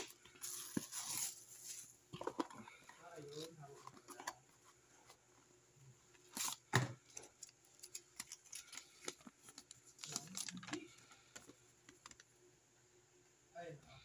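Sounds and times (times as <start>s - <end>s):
paper and plastic crinkling: 0.0s - 4.5s, 6.2s - 12.3s.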